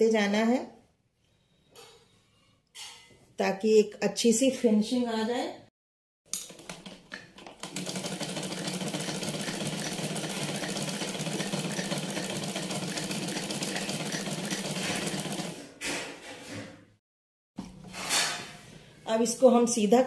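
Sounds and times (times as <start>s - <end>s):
sewing machine clatter: 6.5s - 15.6s.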